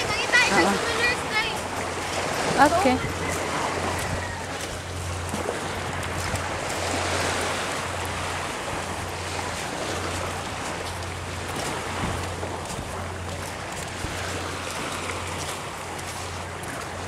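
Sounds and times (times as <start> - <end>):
small waves on pebbly shore: 0.0 - 17.0.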